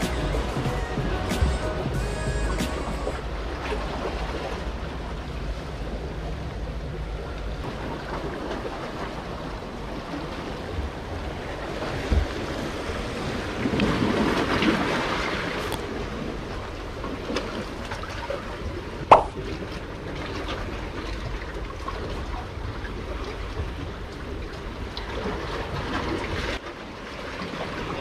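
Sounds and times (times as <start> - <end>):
wind buffeting microphone: 0.0 - 26.6
sea waves splashing on concrete: 6.9 - 28.0.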